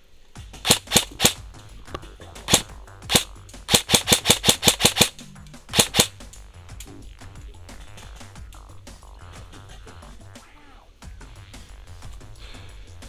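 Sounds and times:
airsoft gun shots: 0.6 - 1.4, 2.5 - 6.1.

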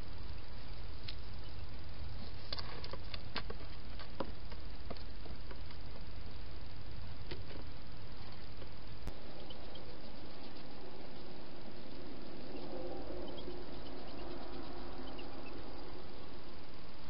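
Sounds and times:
low background hiss: 0.0 - 17.0.

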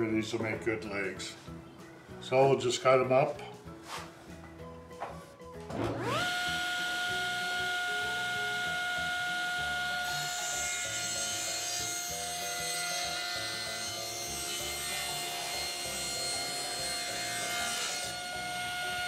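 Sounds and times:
table saw ripping wood: 5.7 - 19.0.

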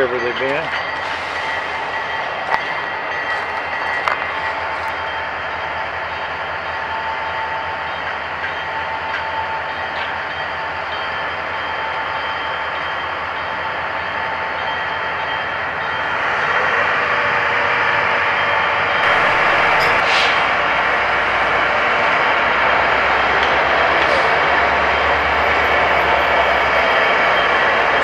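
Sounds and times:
heavy diesel engine running: 15.8 - 28.0.

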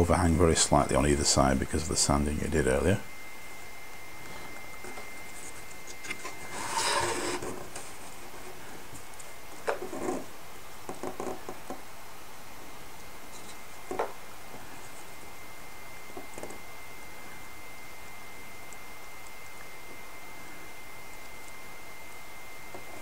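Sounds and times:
wooden hull rubbing scrape: 6.2 - 7.8.

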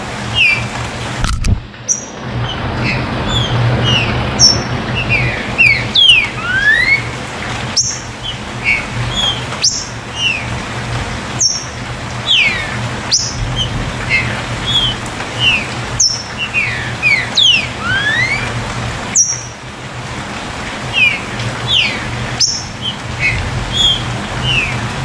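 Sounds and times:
bird whistled chirps: 3.3 - 7.1, 7.8 - 10.4, 11.4 - 11.7, 12.3 - 18.5, 21.0 - 24.7.

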